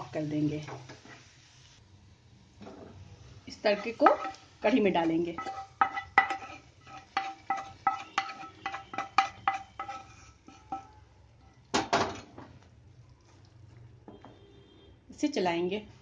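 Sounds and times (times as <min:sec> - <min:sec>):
louder knocks on pan: 0:11.7 - 0:12.5.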